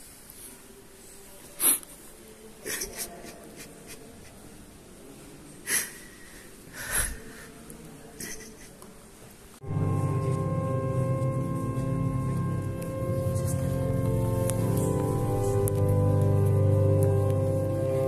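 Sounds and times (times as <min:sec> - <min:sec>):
breaths close to microphone: 0:05.6 - 0:07.7
music: 0:09.6 - 0:18.0.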